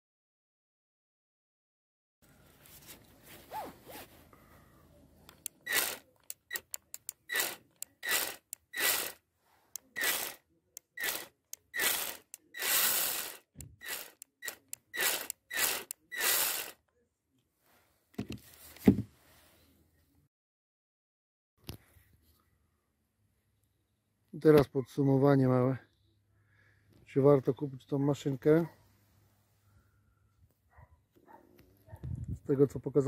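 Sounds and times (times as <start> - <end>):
click: 5.3 - 8.6
mini chainsaw whining: 5.3 - 16.8.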